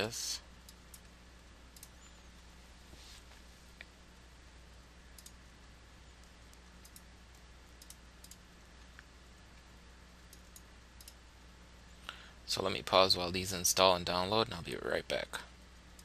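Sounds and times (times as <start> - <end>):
low steady hum: 0.0 - 16.0
computer mouse clicks: 1.7 - 2.0, 5.1 - 5.4, 6.2 - 9.1, 10.3 - 11.2.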